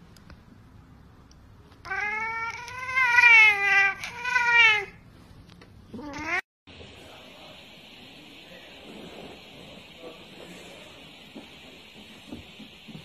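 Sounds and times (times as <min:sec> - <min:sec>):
cat meowing: 0:01.8 - 0:05.0, 0:06.0 - 0:06.4
cat yowling: 0:01.9 - 0:05.0, 0:06.0 - 0:06.4.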